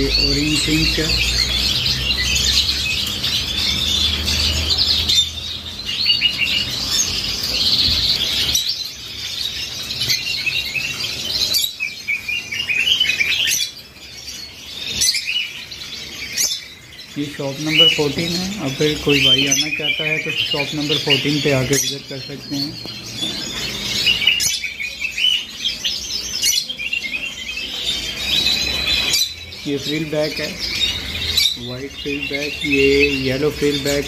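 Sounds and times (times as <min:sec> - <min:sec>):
finches chirping: 0:00.0 - 0:34.0.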